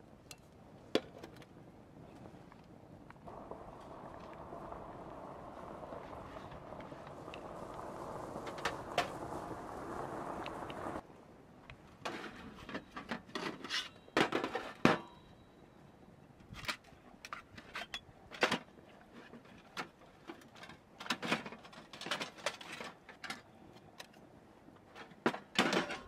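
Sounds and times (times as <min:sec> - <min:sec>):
metal camp gear clinking and scraping: 0:12.0 - 0:15.4, 0:16.5 - 0:24.2.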